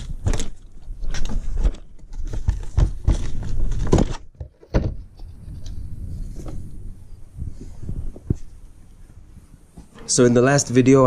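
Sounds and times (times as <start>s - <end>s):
plastic cover knocking and scraping: 0.0s - 5.7s.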